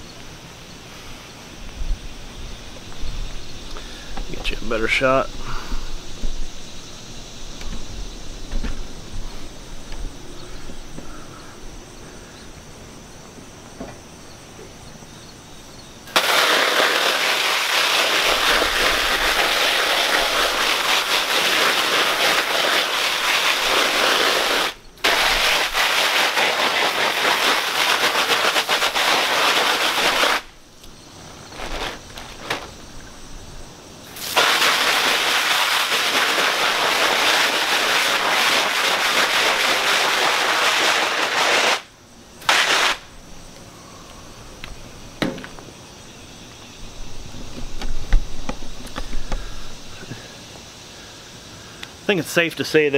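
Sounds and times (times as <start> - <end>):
hose spraying water: 16.0 - 30.6, 34.0 - 43.1.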